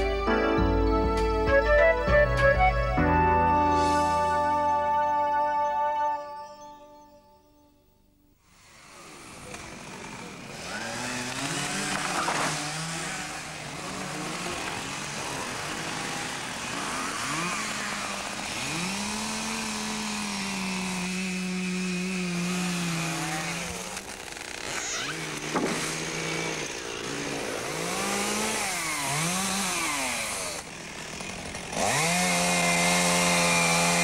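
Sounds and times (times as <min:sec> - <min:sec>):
chainsaw revving and cutting: 0:08.4 - 0:34.0.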